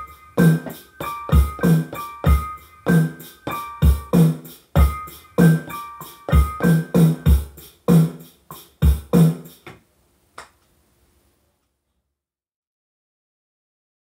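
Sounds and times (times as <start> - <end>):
piano chords: 0.0 - 8.0
hip-hop beat with kick drums: 0.0 - 9.7.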